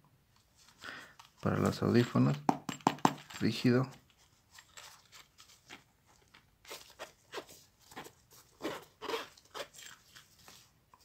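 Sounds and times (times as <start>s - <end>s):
zipper case scrapes and clicks: 6.7s - 10.6s.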